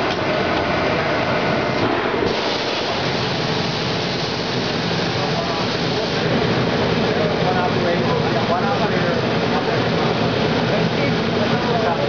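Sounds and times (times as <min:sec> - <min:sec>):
garment finisher air rush and hiss: 0:01.8 - 0:07.0.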